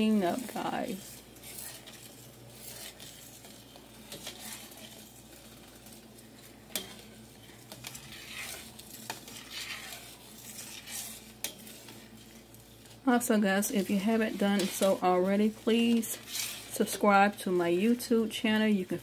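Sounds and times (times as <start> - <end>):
metal utensil stirring in pot: 0.0 - 19.0.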